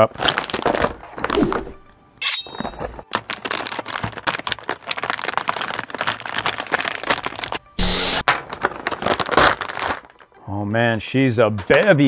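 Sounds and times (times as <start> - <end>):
plastic packaging crackling: 0.0 - 1.4, 3.0 - 10.4.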